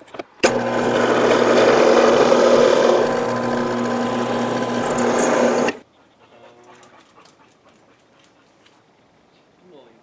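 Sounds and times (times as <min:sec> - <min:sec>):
drill press motor humming: 0:00.4 - 0:05.8.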